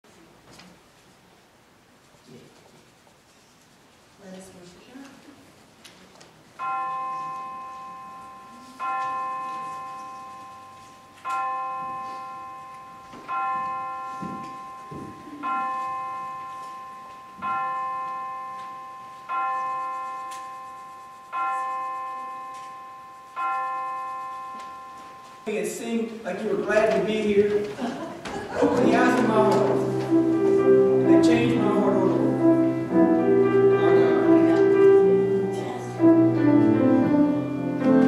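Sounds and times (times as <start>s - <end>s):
church bell tolling: 6.6s - 27.2s, 28.5s - 38.0s.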